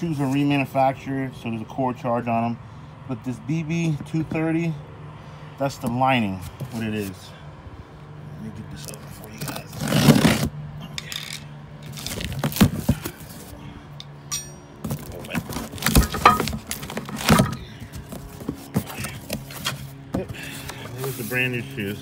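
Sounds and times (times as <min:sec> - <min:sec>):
cardboard flaps scraping and rustling: 0:09.2 - 0:10.5, 0:11.8 - 0:13.5, 0:14.8 - 0:22.0.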